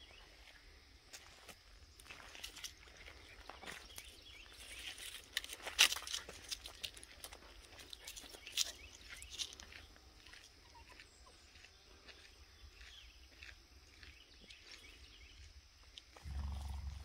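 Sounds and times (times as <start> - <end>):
footsteps crunching dry leaves: 1.1 - 10.5.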